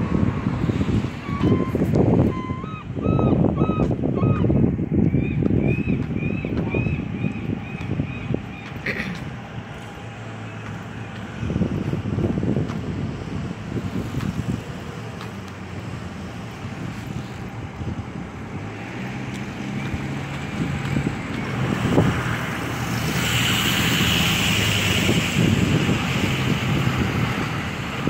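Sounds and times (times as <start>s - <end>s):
wind buffeting microphone: 0.0s - 28.0s.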